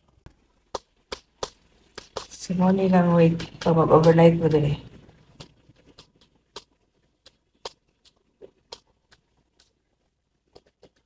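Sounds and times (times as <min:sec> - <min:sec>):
faint sharp clicks and taps: 0:00.0 - 0:11.0.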